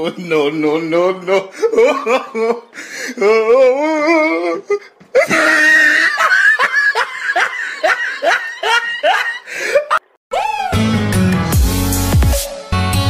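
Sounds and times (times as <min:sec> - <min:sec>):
person laughing hard: 0:01.5 - 0:10.7.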